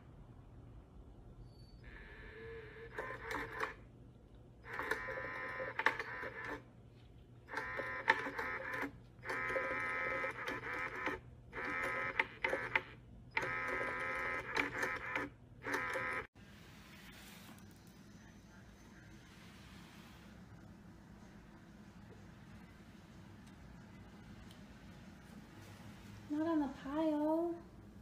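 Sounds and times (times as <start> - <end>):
small motor whining: 13.4 - 16.3.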